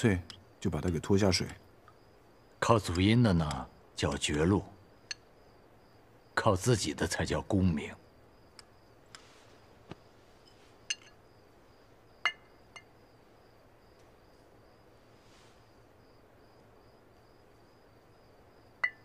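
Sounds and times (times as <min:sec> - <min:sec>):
faint cricket chirping: 0:00.0 - 0:19.0
dishes clinking: 0:10.4 - 0:11.2.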